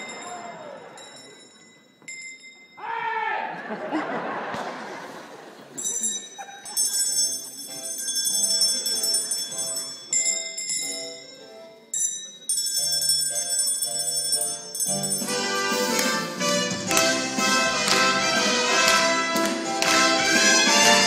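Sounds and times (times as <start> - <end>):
bells ringing: 0.0 - 3.0, 5.8 - 17.0
string music: 15.3 - 21.0.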